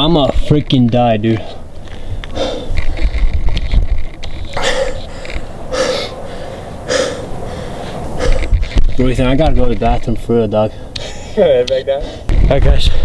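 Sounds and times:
man breathing hard: 1.4 - 3.4, 4.6 - 8.9, 10.7 - 11.4, 12.0 - 13.0.

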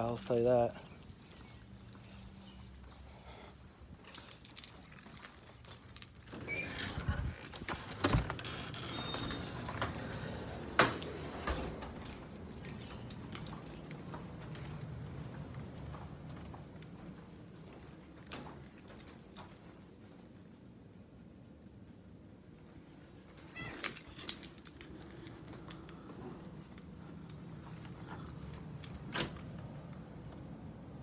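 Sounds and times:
door opening and closing: 6.2 - 15.1, 27.3 - 30.5.

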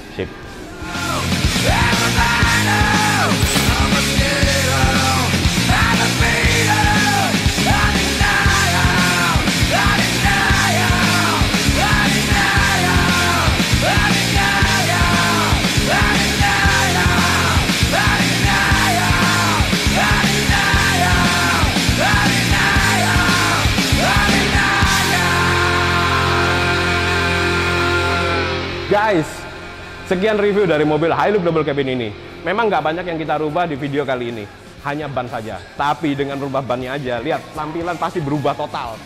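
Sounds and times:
shouted vocals: 0.7 - 28.5
loud rock music: 0.8 - 39.0.

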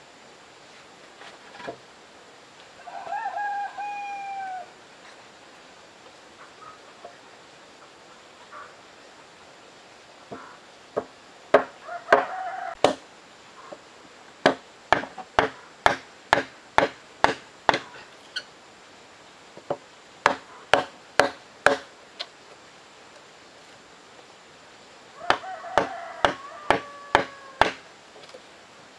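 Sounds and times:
wooden mallet striking a chisel: 11.0 - 13.0, 14.4 - 17.9, 19.7 - 21.9, 25.3 - 27.8.

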